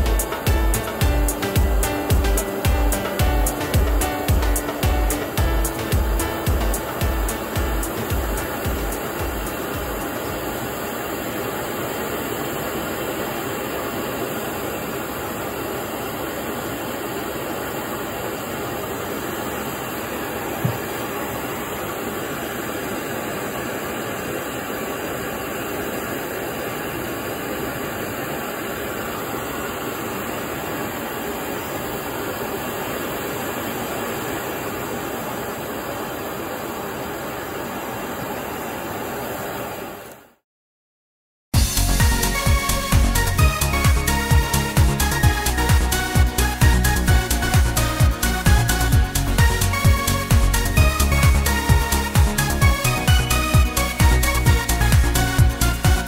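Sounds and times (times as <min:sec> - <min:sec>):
stove burner roaring: 0:00.0 - 0:40.2.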